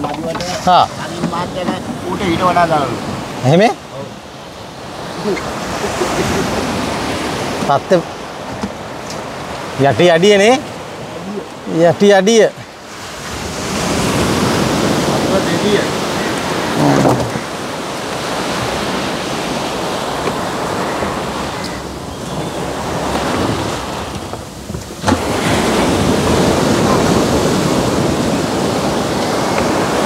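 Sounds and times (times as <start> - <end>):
sea surf washing in: 0.0 - 30.0
wave breaking: 12.9 - 30.0.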